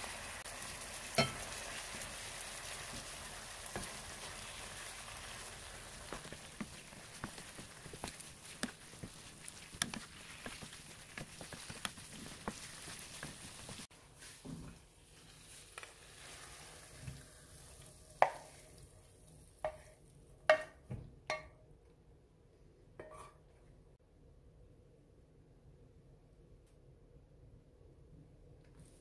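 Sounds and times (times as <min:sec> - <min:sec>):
food sizzling in a frying pan: 0:00.0 - 0:20.0
wooden spatula scraping clicks: 0:06.1 - 0:13.5.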